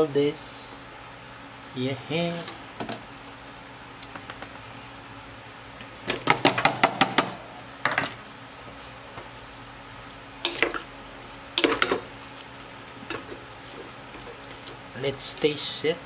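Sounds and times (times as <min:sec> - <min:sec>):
metal spoon clinking against pot: 0:10.4 - 0:10.8.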